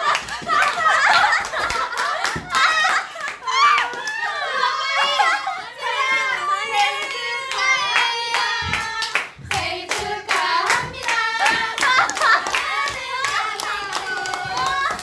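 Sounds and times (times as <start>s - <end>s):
women singing together: 0.0s - 15.0s.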